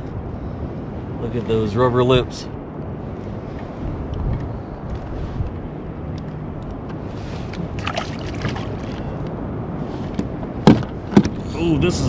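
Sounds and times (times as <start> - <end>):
wind: 0.0 - 12.0
water wash: 7.1 - 9.2.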